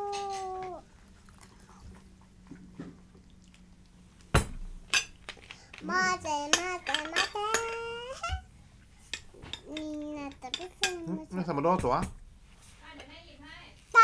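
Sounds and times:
child sing-song voice: 0:05.8 - 0:08.5.

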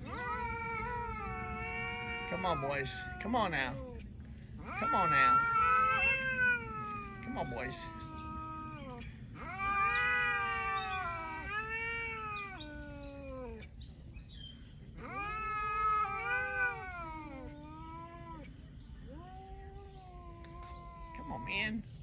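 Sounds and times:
cats yowling: 0:00.0 - 0:13.8, 0:14.9 - 0:21.8.

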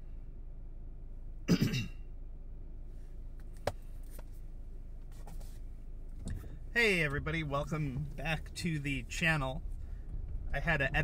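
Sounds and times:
low background rumble: 0:00.0 - 0:11.0
man clearing throat: 0:01.5 - 0:02.0.

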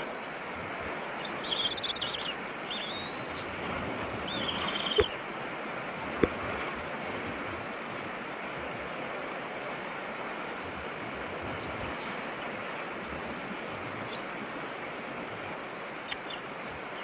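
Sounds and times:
eaglet begging peeps: 0:01.2 - 0:03.4, 0:04.3 - 0:05.1.

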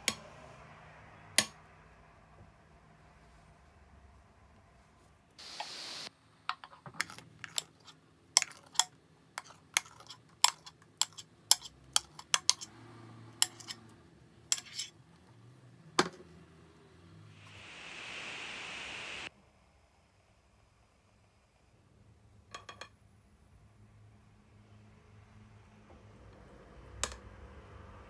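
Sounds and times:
short hiss: 0:05.4 - 0:06.1, 0:17.4 - 0:19.3
metal spoon scraping glass bowl: 0:09.4 - 0:12.7, 0:13.4 - 0:13.9, 0:14.5 - 0:15.0.

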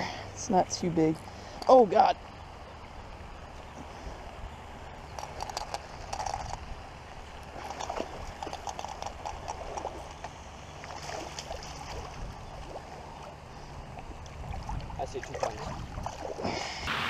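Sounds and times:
fish splashing in water: 0:07.3 - 0:17.0.

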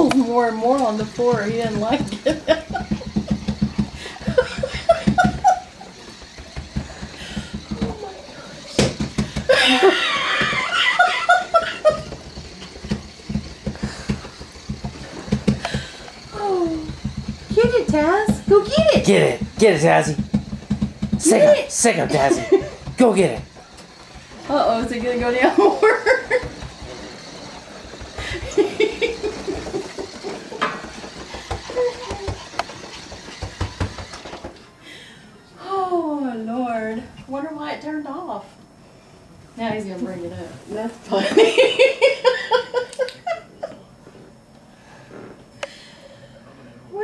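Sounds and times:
toy and dog knocking on floor: 0:01.0 - 0:08.0, 0:08.8 - 0:09.6, 0:11.8 - 0:27.1, 0:29.2 - 0:34.6
person laughing: 0:09.5 - 0:12.2, 0:28.2 - 0:30.6, 0:41.2 - 0:43.8.

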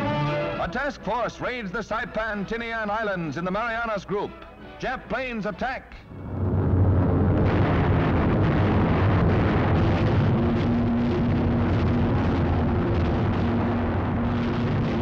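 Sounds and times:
aircraft engines droning: 0:00.0 - 0:09.8
anti-aircraft gunfire: 0:06.6 - 0:15.0.

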